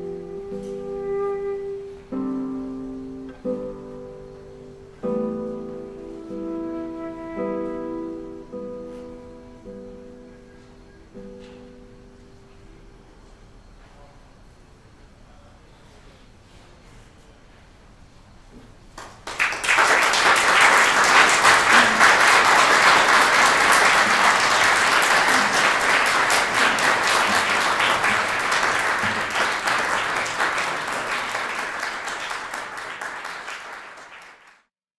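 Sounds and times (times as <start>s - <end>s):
audience applauding: 19.0s - 34.7s.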